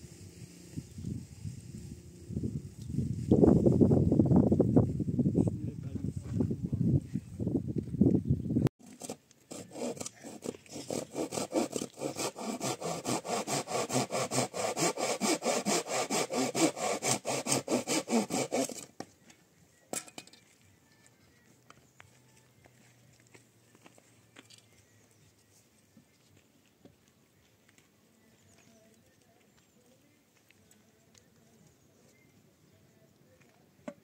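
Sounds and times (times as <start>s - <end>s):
tool sawing back and forth: 8.8s - 18.9s.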